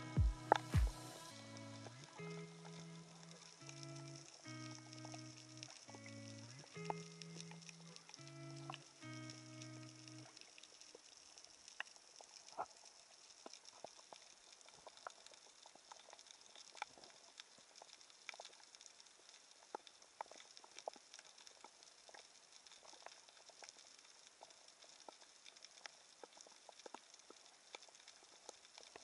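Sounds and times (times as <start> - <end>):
background music: 0.0 - 10.1
steady underwater hiss: 0.0 - 29.0
underwater clicks and snaps: 2.2 - 29.0.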